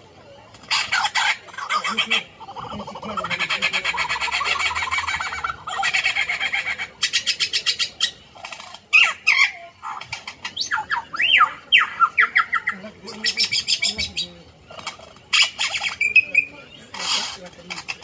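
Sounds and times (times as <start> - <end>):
fast rattling chatter: 0.0 - 18.0
lyrebird singing mimicked sounds: 0.7 - 18.0.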